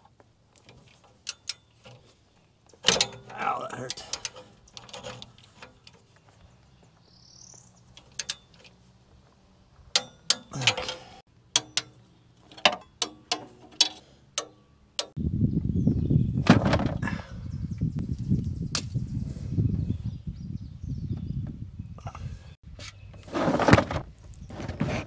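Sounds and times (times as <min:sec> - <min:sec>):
hand tools clanking on metal: 0:02.8 - 0:06.1, 0:08.0 - 0:08.8, 0:09.9 - 0:15.2
rising bird chirp: 0:04.5 - 0:10.6, 0:14.4 - 0:23.3.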